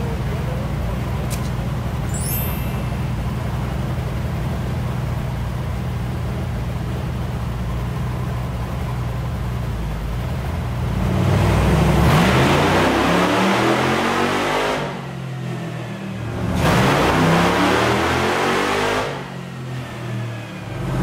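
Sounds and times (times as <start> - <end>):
engine idling and revving: 0.0 - 21.0.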